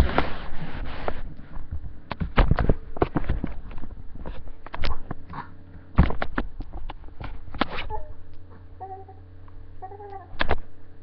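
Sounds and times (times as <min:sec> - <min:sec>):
faint baby cooing: 0:07.9 - 0:09.2.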